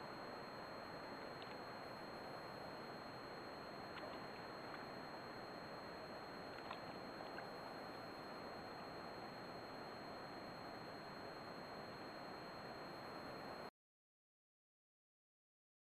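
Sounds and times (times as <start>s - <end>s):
faint ticks and splashes: 0.8s - 10.2s.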